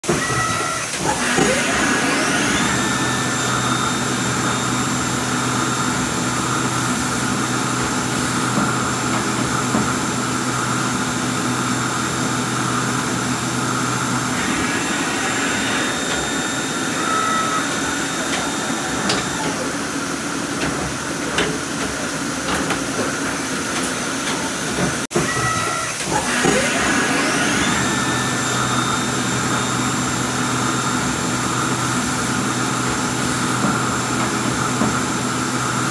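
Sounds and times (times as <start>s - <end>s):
machine hiss: 0.7s - 24.6s
spindle whine: 1.0s - 21.5s, 26.1s - 32.6s.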